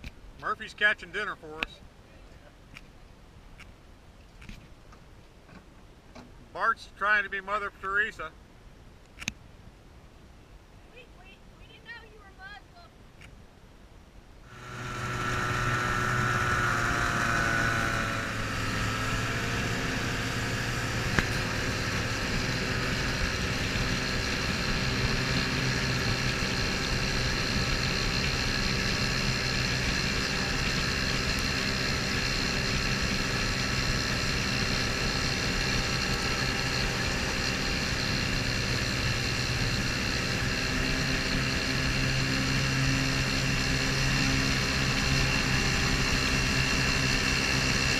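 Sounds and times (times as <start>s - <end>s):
wind: 0.0s - 47.9s
outboard motor running: 14.5s - 47.9s
water rushing: 14.5s - 47.9s.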